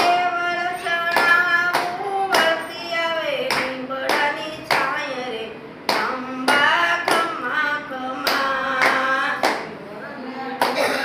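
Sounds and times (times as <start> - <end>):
hand claps: 0.0 - 0.3, 1.0 - 2.8, 3.4 - 5.0, 5.8 - 7.4, 8.2 - 9.7, 10.6 - 10.8
women singing together: 0.0 - 11.0.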